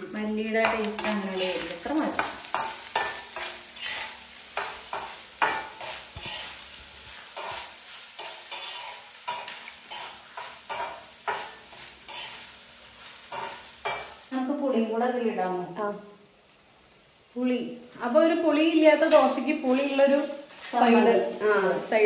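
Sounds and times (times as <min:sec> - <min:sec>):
onions sizzling: 0:00.0 - 0:22.0
spatula scraping a pan: 0:00.6 - 0:14.3.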